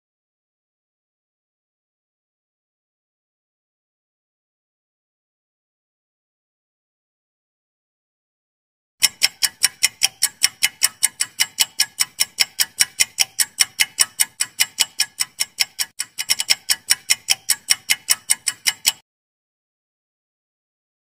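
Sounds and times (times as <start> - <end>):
countdown timer ticking: 9.0 - 19.0.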